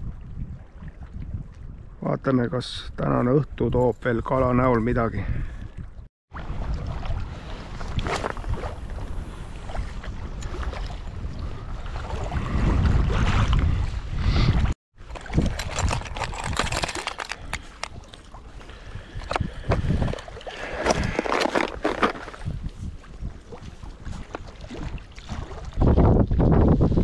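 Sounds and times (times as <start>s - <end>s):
sea water lapping and splashing: 0.0s - 2.0s, 5.5s - 27.0s
wind rumbling on microphone: 0.0s - 27.0s
sharp splashes and clicks: 15.0s - 18.4s.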